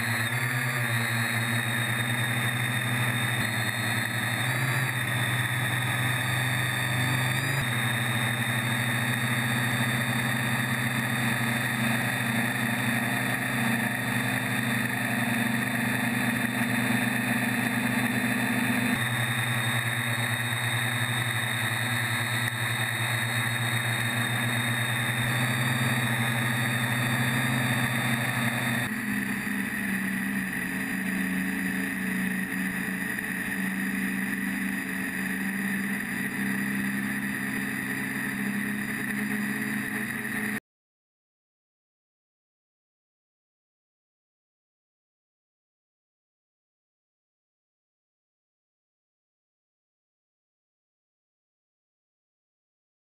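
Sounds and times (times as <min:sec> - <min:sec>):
quadcopter motors humming: 0:00.0 - 0:40.6.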